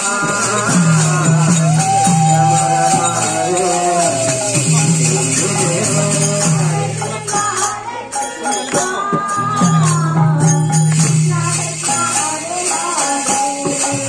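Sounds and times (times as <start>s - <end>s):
devotional singing: 0.0s - 14.0s
jingling percussion: 0.0s - 14.0s.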